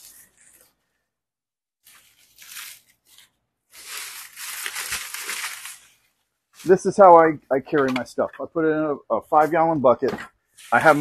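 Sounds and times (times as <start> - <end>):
dry leaves crinkling: 1.8 - 6.0.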